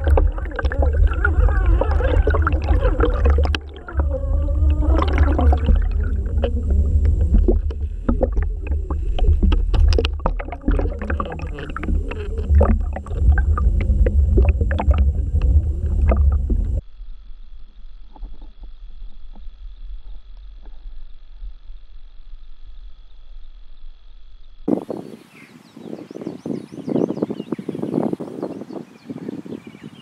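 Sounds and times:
underwater rushing rumble: 0.0s - 22.4s.

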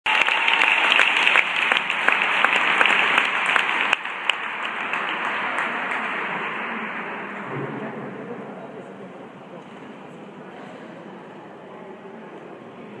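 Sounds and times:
audience applauding: 0.0s - 7.0s
sharp individual claps: 0.1s - 6.5s.

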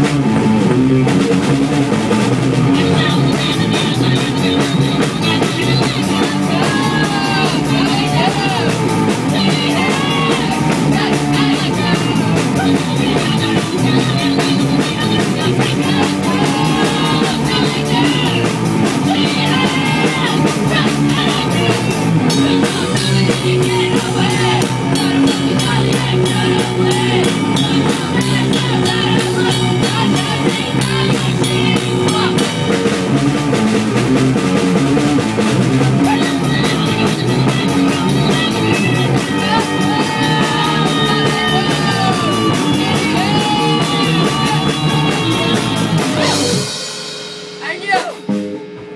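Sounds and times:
drum kit beat: 0.0s - 48.9s
electric guitar: 0.0s - 48.9s
sung shouted vocals: 2.6s - 33.1s, 35.7s - 46.8s
cymbal strikes: 46.4s - 48.9s.

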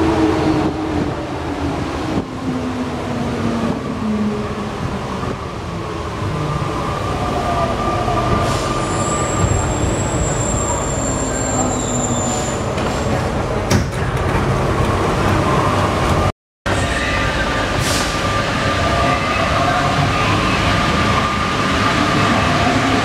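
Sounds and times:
metro train rumble: 0.0s - 23.0s.

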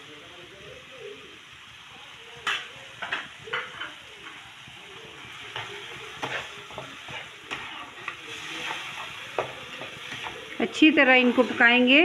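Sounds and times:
chicken sizzling in a frying pan: 0.0s - 12.0s
spatula scraping and knocking pan: 5.5s - 11.9s.

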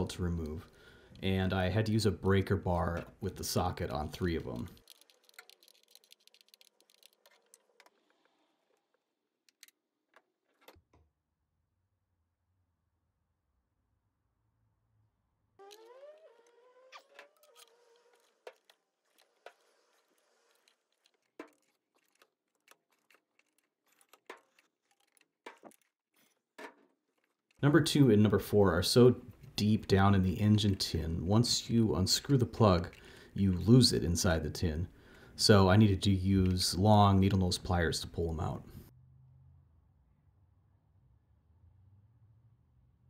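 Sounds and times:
faint clicks and knocks: 4.0s - 11.1s, 17.0s - 27.6s.

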